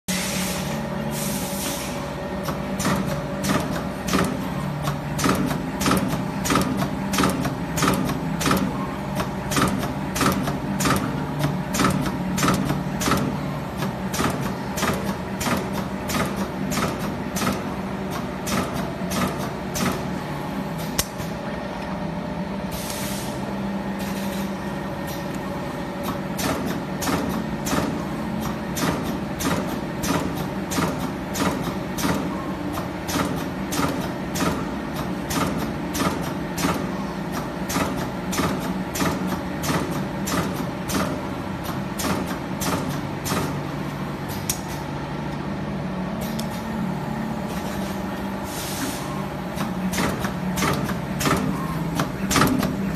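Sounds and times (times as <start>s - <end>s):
air hisses: 0.1s - 2.1s
pneumatic punch clicks: 2.4s - 20.1s, 20.8s - 21.4s, 26.0s - 43.6s, 44.3s - 44.8s, 48.8s - 52.9s.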